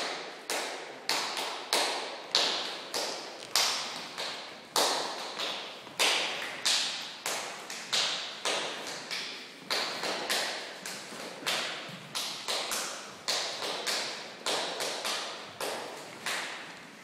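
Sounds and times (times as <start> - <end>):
sharp claps in reverberant hall: 0.0 - 17.0.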